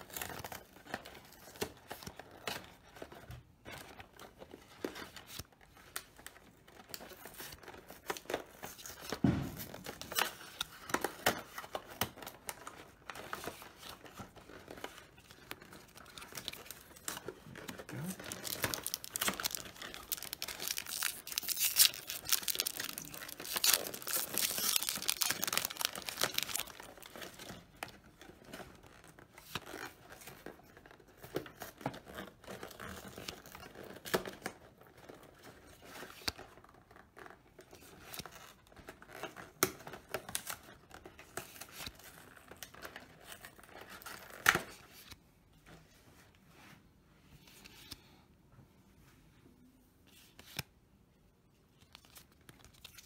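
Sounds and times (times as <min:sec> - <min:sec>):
trading cards rustling and flicking: 0:00.0 - 0:30.5, 0:50.1 - 0:50.7, 0:51.8 - 0:53.0
foil wrappers tearing and crinkling: 0:15.8 - 0:27.5.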